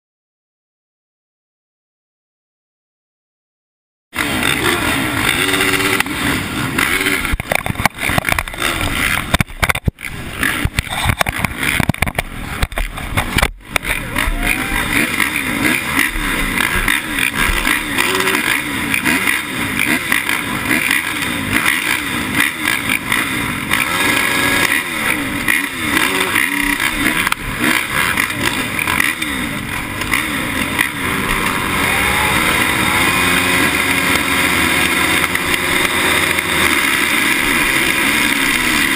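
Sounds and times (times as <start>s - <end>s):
motocross bikes idling and revving: 4.2s - 38.9s.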